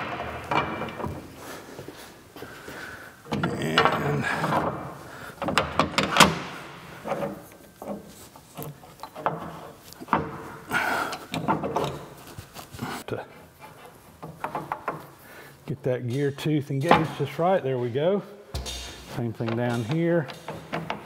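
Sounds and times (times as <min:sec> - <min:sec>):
sharp metal knocks: 0:18.6 - 0:21.0.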